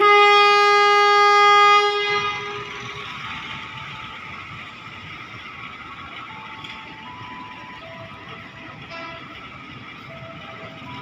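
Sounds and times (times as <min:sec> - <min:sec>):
train horn blast: 0:00.0 - 0:03.0, 0:08.9 - 0:09.5
steady train noise: 0:00.0 - 0:11.0.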